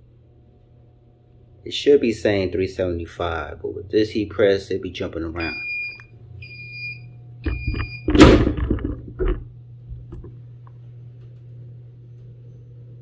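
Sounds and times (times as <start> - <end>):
steady low hum: 0.0 - 13.0
heat press timer beeping: 5.4 - 8.3.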